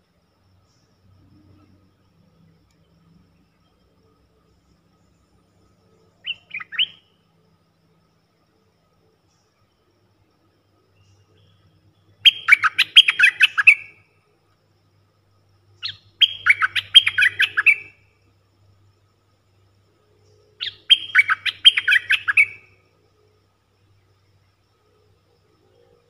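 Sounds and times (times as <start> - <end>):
bird singing rapid notes: 6.2 - 7.1, 11.0 - 14.0, 15.8 - 18.0, 20.6 - 22.8.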